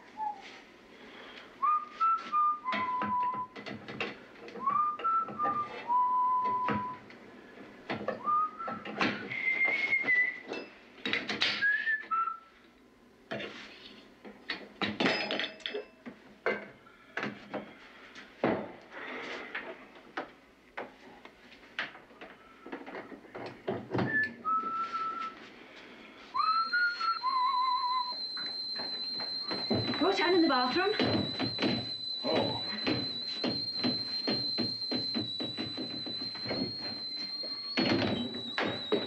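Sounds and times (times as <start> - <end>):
person whistling: 0.0 - 0.6, 1.6 - 3.6, 4.6 - 7.0, 8.2 - 10.4, 11.6 - 12.5, 24.0 - 25.4, 26.3 - 39.0.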